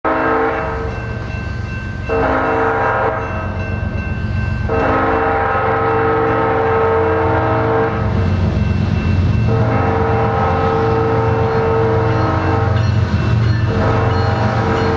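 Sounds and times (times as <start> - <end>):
locomotive air horn blasts: 0.0 - 0.9, 2.1 - 3.3, 4.7 - 8.1, 9.5 - 12.8, 13.7 - 14.9.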